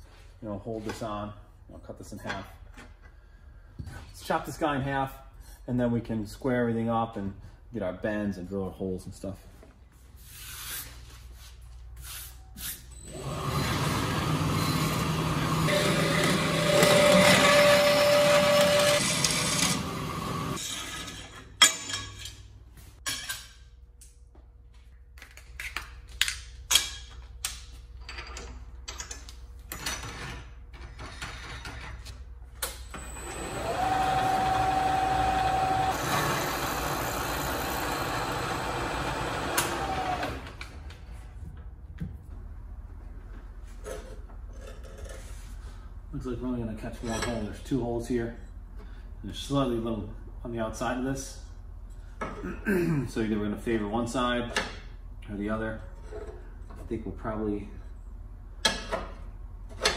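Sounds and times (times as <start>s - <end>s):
power tool whining: 13.0s - 20.6s, 32.8s - 40.8s.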